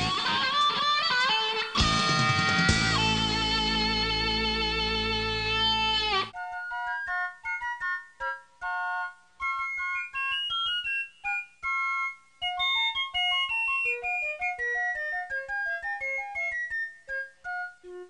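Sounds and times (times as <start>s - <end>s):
electric guitar chord bending down: 0.0s - 6.3s.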